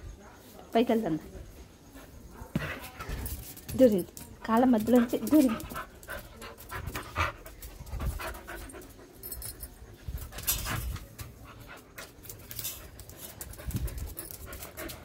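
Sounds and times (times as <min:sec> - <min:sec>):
dog panting: 0:04.3 - 0:15.0.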